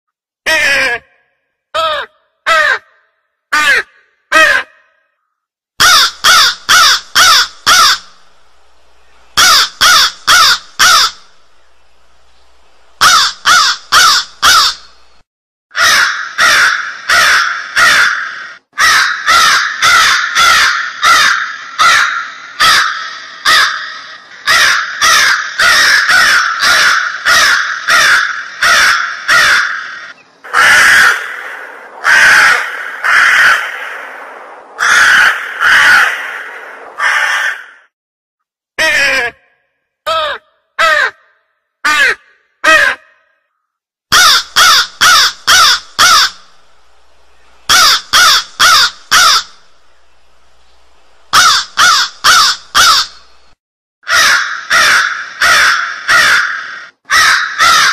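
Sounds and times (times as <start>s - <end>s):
crows cawing: 1.8s - 5.1s, 5.8s - 8.2s, 9.4s - 11.3s, 13.0s - 15.0s, 15.7s - 37.9s, 40.1s - 43.5s, 44.1s - 46.5s, 47.7s - 49.7s, 51.3s - 53.3s, 54.0s - 57.9s.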